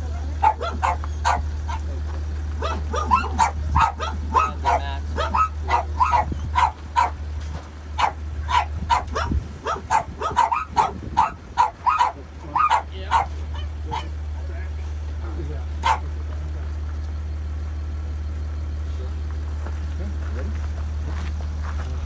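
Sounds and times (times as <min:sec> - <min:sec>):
dogs barking and yipping: 0:00.0 - 0:01.9, 0:02.5 - 0:14.4, 0:15.8 - 0:16.2.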